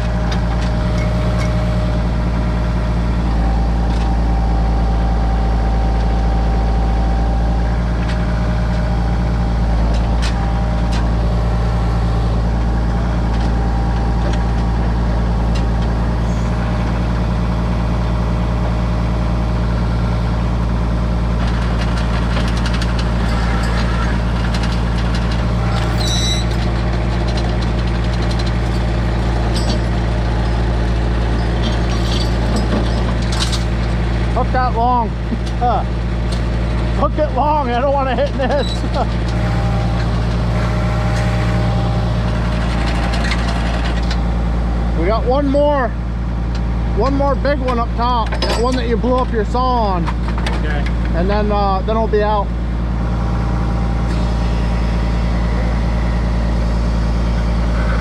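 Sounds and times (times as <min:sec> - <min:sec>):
tractor engine running: 0:00.0 - 0:58.0.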